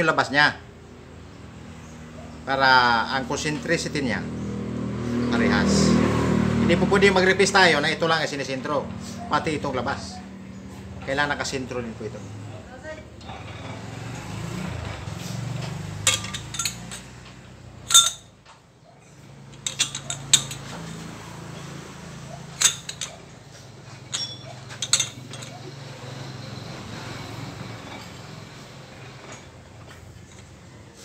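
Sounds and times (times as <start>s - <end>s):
chuck key clinking on metal: 16.0s - 17.2s, 17.9s - 18.3s, 19.6s - 21.0s, 22.5s - 23.3s, 24.1s - 25.7s.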